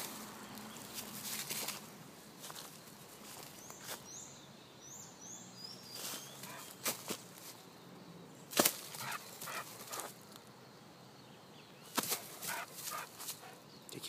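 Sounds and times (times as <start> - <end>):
dog playing on dry leaves: 8.8 - 10.1, 12.0 - 13.6.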